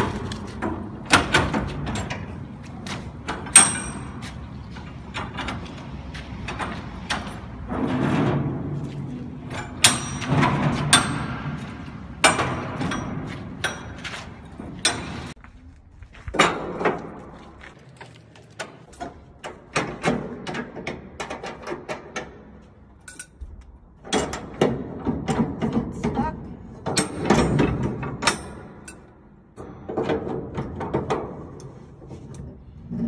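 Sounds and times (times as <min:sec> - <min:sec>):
metal bars clanking and scraping: 0:00.0 - 0:15.4, 0:24.0 - 0:33.0
metal latch clicks: 0:00.7 - 0:04.2, 0:09.5 - 0:11.4.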